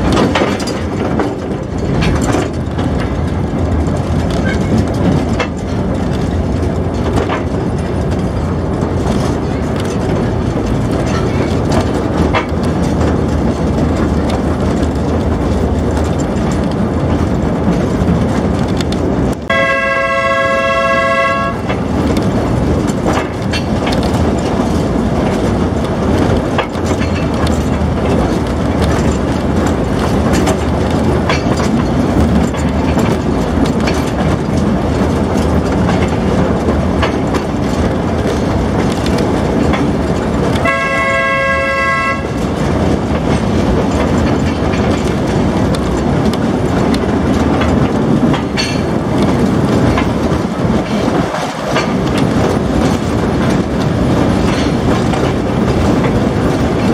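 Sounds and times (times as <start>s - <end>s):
rail clicks: 0.0s - 56.9s
train running noise: 0.0s - 56.9s
train horn: 19.5s - 21.7s, 40.6s - 42.4s.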